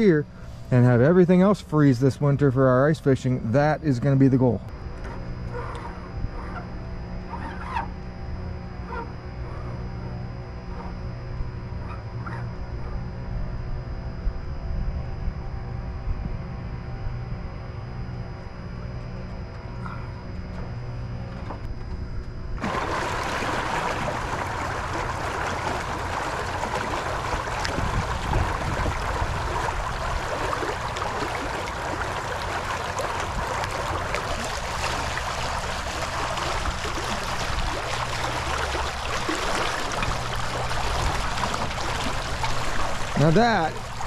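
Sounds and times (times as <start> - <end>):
pond water churning and splashing: 22.6 - 44.0.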